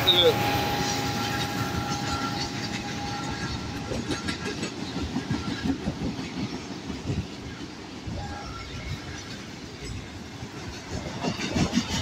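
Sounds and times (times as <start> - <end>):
locomotive horn: 0.0 - 3.9
train wheels clacking over rail joints: 0.0 - 12.0.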